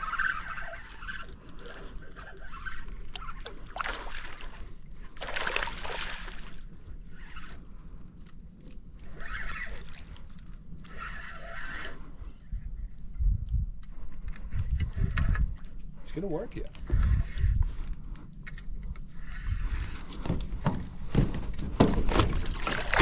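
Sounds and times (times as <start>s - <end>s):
water splashing and sloshing: 0.0s - 7.6s, 19.1s - 23.0s.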